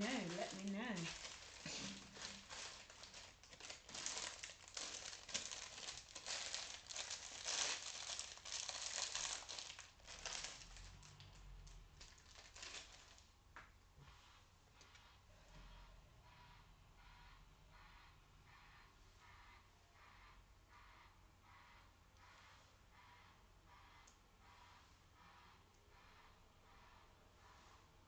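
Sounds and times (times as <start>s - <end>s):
plastic bag crinkling: 0.0s - 13.2s.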